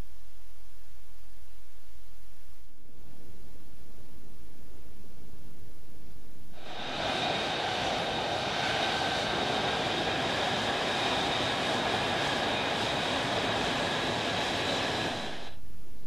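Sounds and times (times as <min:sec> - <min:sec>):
jet engine turbine whine: 0:06.5 - 0:15.6.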